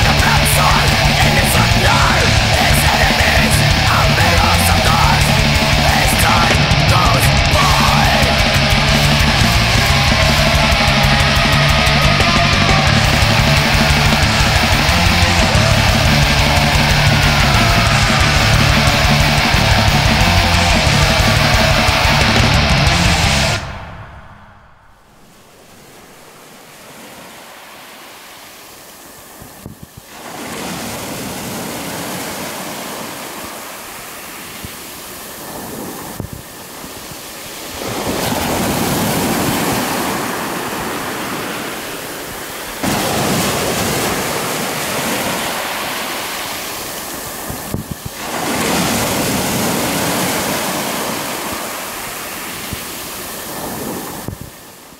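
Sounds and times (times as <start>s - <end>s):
waves breaking on pebble beach: 25.2s - 54.9s.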